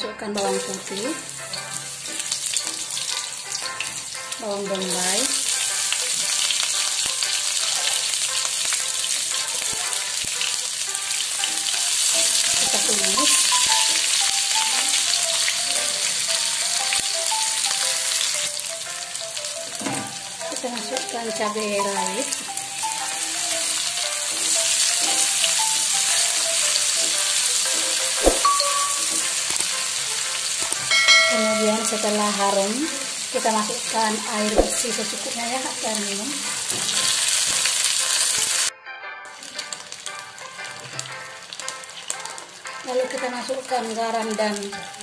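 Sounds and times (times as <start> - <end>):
onion sizzling in hot oil: 0.3 - 38.7, 39.4 - 45.0
sharp knock: 28.2 - 28.5.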